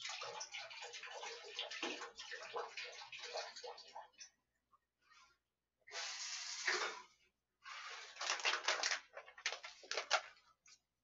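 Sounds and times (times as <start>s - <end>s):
running water: 0.0s - 4.4s
plastic bag crinkling: 8.1s - 10.5s.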